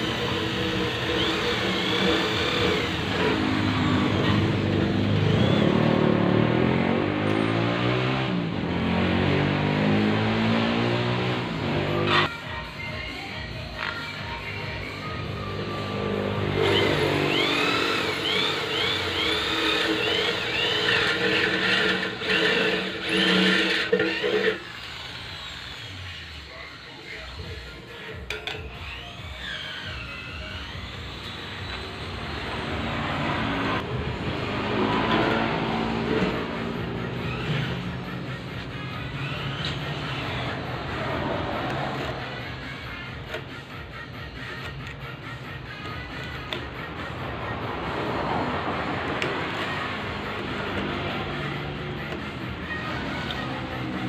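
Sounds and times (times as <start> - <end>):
electric drill motor under load: 0.0 - 6.4, 15.3 - 33.9, 37.1 - 46.7
angle grinder grinding steel: 0.0 - 12.3, 15.0 - 47.2, 48.8 - 54.0.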